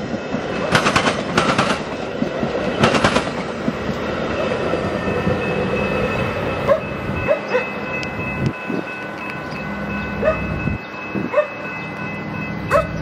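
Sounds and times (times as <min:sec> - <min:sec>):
train rumbling on track: 0:00.0 - 0:13.0
dog barking in yelps: 0:10.2 - 0:10.4, 0:12.7 - 0:13.0.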